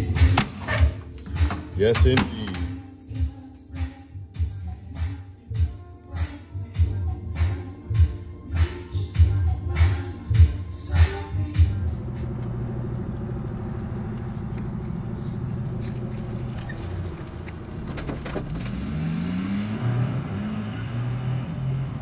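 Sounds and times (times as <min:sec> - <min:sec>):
truck engine accelerating: 0:11.6 - 0:22.0.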